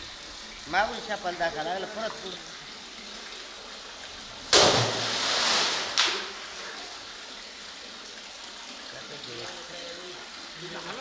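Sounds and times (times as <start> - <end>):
water splashing: 0.0 - 8.4
sharp knock: 4.5 - 5.0.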